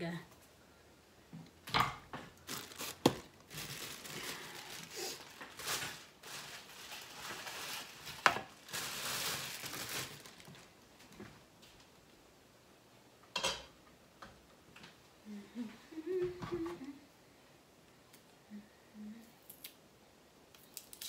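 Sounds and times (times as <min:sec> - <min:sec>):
plastic bag crinkling: 0:02.4 - 0:11.2.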